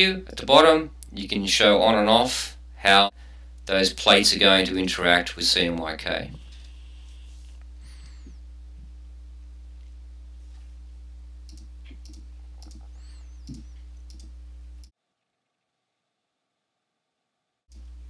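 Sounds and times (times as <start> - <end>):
low electrical hum: 0.0 - 18.0
computer mouse clicks: 11.5 - 14.3.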